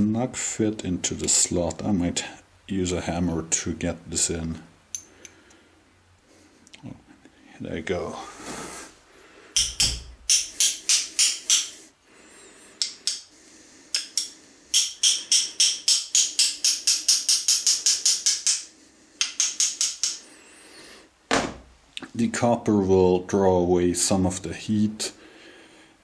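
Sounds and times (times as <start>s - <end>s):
hammer tapping metal bar: 9.6s - 11.8s, 13.9s - 20.2s.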